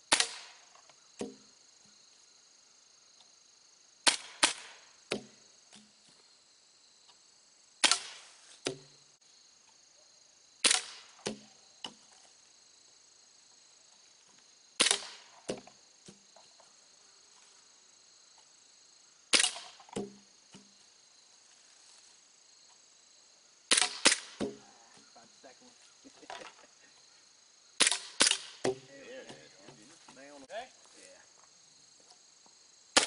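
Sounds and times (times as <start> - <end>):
airsoft pistol shots: 0.1 - 0.6, 4.0 - 4.8, 7.8 - 8.2, 10.6 - 11.2, 14.8 - 15.3, 19.3 - 19.8, 23.7 - 24.4, 27.8 - 28.6
dull knocks of targets: 0.1 - 1.5, 4.0 - 6.0, 7.8 - 9.0, 10.6 - 12.1, 14.8 - 16.2, 19.3 - 20.7, 23.7 - 24.6, 27.8 - 29.8.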